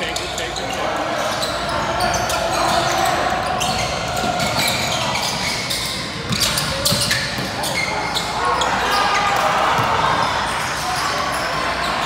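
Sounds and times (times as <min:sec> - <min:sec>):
murmur of voices: 0:00.0 - 0:12.0
basketball bouncing on court: 0:06.2 - 0:07.9, 0:09.7 - 0:10.3.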